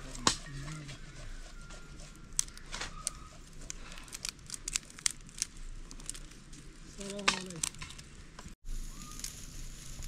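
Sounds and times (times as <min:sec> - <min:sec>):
dry twigs snapping: 0:02.3 - 0:08.1.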